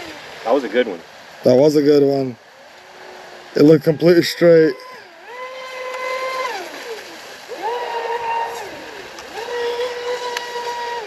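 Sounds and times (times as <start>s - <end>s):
water hiss: 0.0s - 11.0s
electric motor whining: 4.7s - 11.0s.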